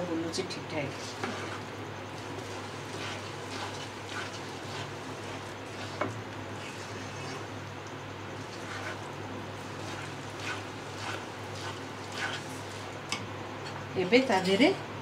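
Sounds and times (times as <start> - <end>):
steady low hum: 0.0 - 15.0
spatula scraping a pan: 0.8 - 7.6, 8.3 - 12.9.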